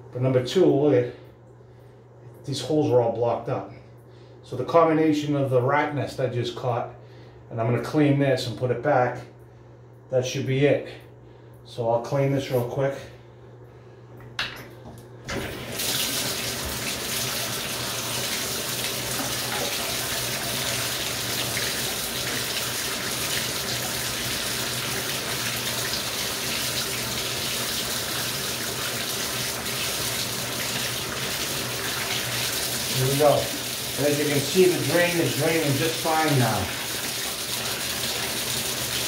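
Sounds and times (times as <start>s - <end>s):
water running from tub spout: 15.3s - 39.0s.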